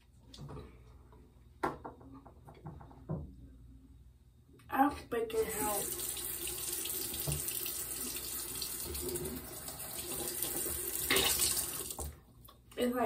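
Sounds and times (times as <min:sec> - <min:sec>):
water running from a tap: 0:05.4 - 0:12.2.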